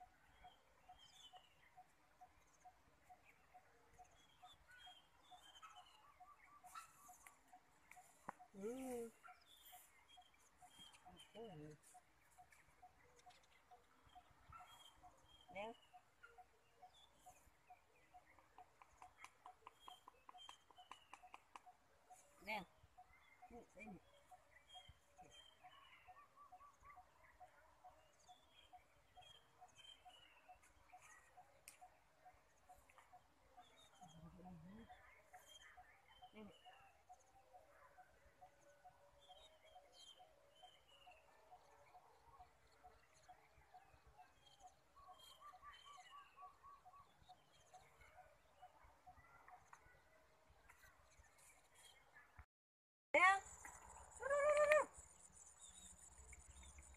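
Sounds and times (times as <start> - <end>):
faint birds chirping: 0.0 - 52.5, 53.2 - 56.9.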